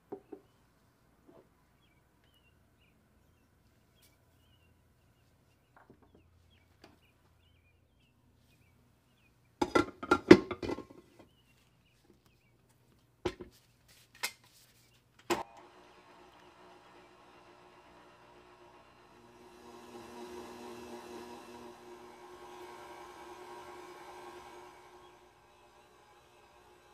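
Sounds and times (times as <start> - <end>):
stand mixer motor humming: 15.4 - 26.9.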